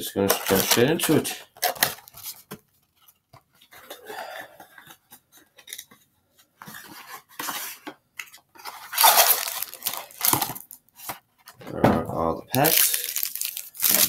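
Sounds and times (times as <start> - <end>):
wrapper ripping: 0.3 - 2.3, 8.9 - 10.8, 12.5 - 14.0
cardboard scraping and rustling: 6.6 - 11.6.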